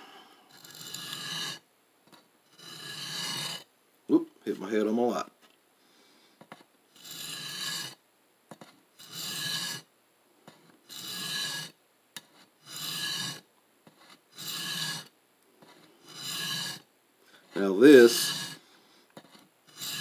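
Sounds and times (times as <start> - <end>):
knife grinding on diamond plate: 0.5 - 1.6, 2.5 - 3.7, 7.0 - 8.0, 9.0 - 9.9, 10.9 - 16.8, 17.5 - 18.6, 19.2 - 20.0.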